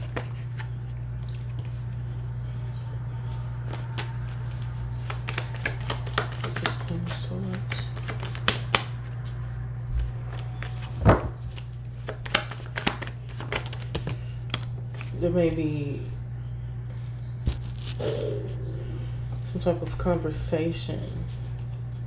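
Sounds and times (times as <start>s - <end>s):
cards being shuffled: 0.0s - 1.9s, 3.2s - 15.7s, 16.9s - 18.6s
steady low hum: 0.0s - 22.0s.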